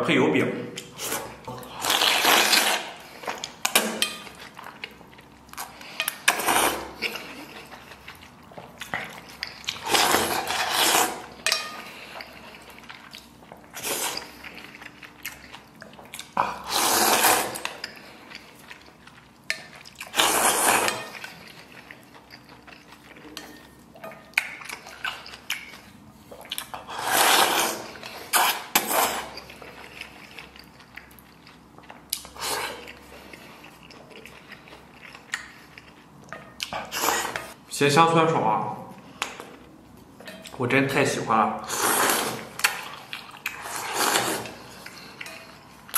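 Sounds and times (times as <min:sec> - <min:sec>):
noodles slurped: 0:01.0 - 0:03.5, 0:08.9 - 0:12.8, 0:16.2 - 0:17.9, 0:20.0 - 0:21.8, 0:26.6 - 0:30.2, 0:41.6 - 0:45.2.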